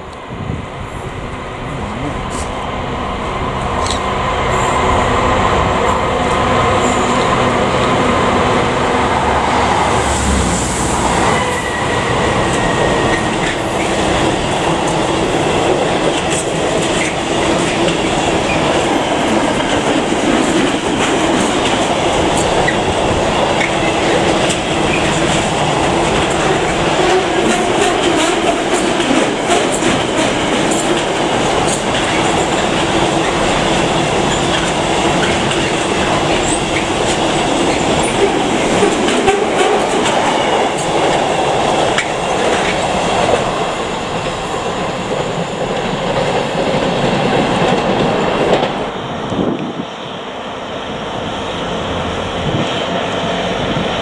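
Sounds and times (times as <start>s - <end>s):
diesel locomotive engine: 0.0s - 54.0s
wheels clicking over rail joints: 15.7s - 43.6s.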